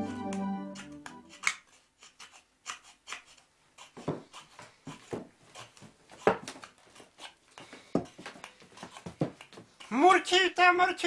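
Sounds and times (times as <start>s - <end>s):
knife whittling wood: 0.8s - 10.2s.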